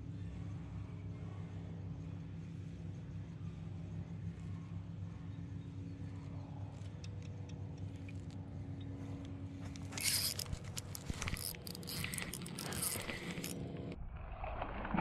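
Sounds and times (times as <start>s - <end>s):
handling clicks and rustling: 6.7s - 14.0s
electric motor humming: 9.0s - 14.0s.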